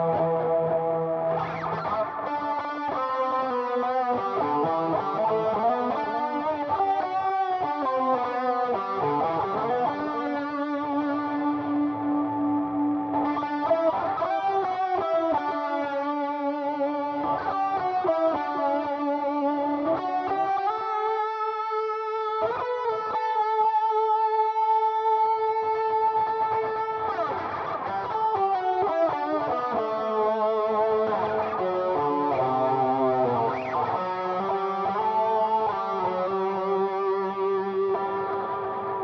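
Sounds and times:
overdriven electric guitar lead: 0.0s - 39.0s.

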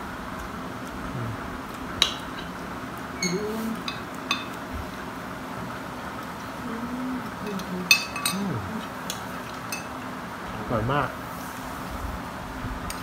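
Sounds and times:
electric fans humming: 0.0s - 13.0s
spoon clinking on a plate: 3.2s - 4.6s, 7.5s - 8.4s, 9.7s - 10.0s.

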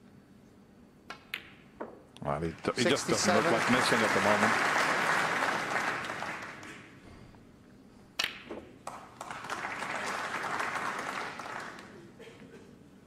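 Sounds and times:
audience applause: 2.7s - 6.9s, 8.8s - 12.1s.

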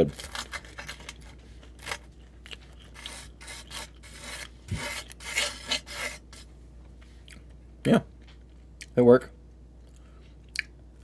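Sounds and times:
fork scraping on metal pan: 3.0s - 6.4s.

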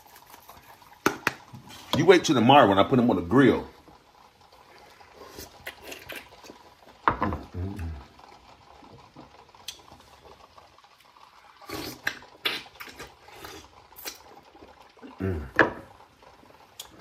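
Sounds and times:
oyster slurping: 4.2s - 17.0s.

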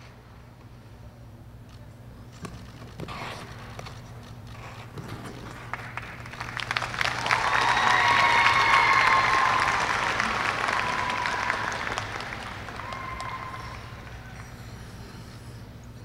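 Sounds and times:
audience applause: 5.7s - 14.4s.

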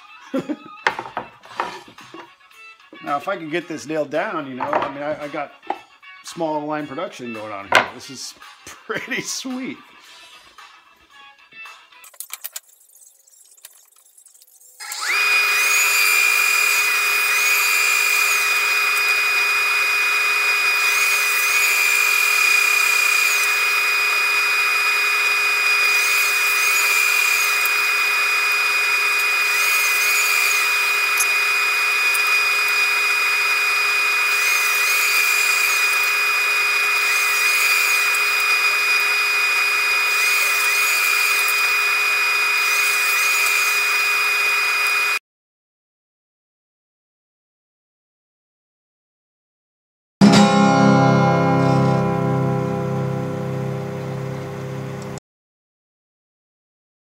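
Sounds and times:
power tool motor whining: 14.5s - 45.2s.

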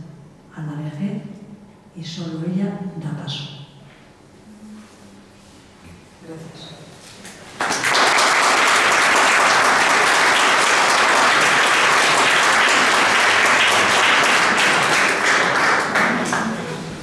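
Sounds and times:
audience applauding: 7.6s - 17.0s.

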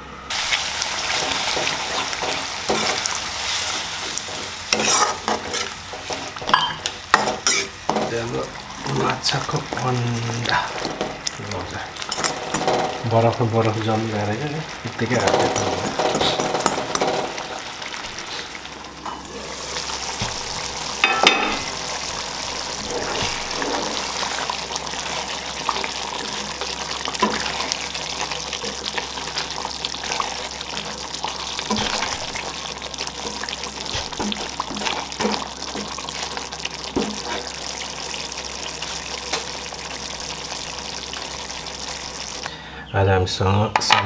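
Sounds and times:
gravy sizzling in a pan: 0.3s - 42.7s
spatula scraping a pan: 1.1s - 8.2s, 22.5s - 27.9s, 28.6s - 36.4s.

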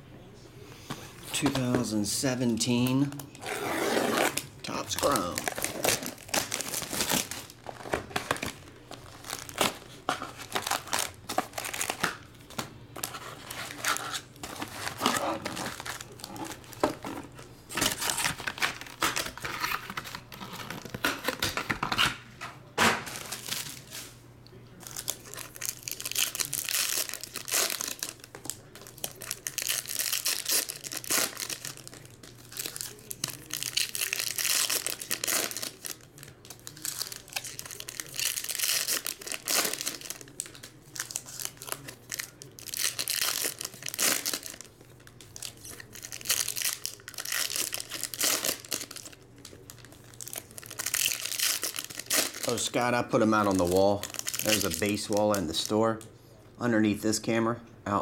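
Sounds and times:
foil wrappers tearing and crinkling: 1.3s - 22.2s, 23.0s - 24.1s, 24.8s - 55.7s.

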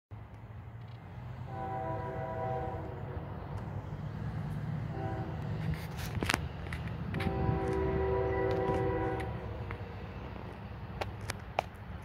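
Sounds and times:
locomotive air horn blasts: 1.4s - 3.3s, 4.8s - 6.1s, 7.1s - 9.7s.

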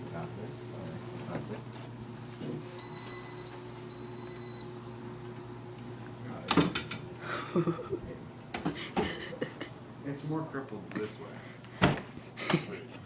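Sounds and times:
power wheelchair motor hum: 0.0s - 10.5s
long high beeps: 2.8s - 4.8s.

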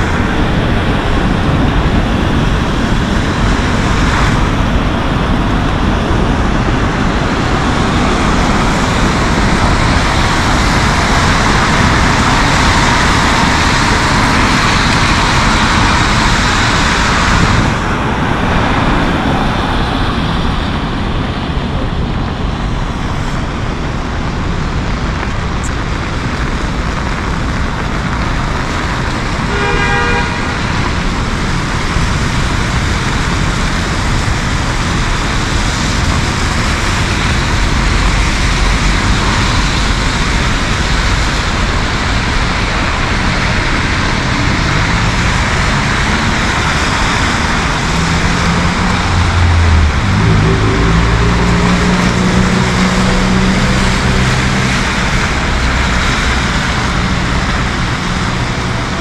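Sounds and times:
heavy rain hiss: 0.0s - 59.0s
vehicles passing on wet streets: 0.0s - 59.0s
car horn toot: 29.5s - 30.6s.

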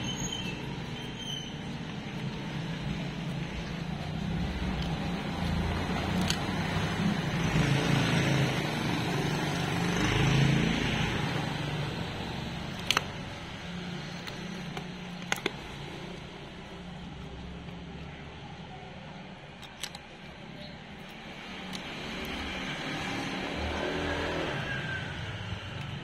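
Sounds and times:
sharp clicks: 19.5s - 22.5s.

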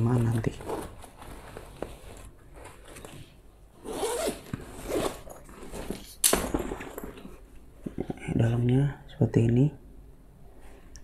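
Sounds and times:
backpack zipper pulled open: 3.8s - 6.0s.

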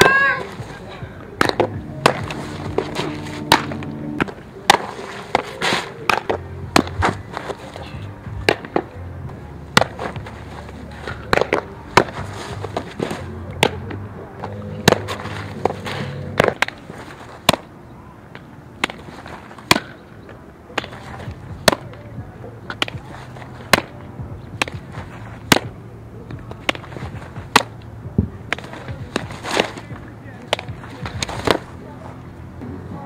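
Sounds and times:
ball smacking into leather mitt: 1.4s - 7.8s, 9.7s - 10.4s, 22.7s - 31.7s.

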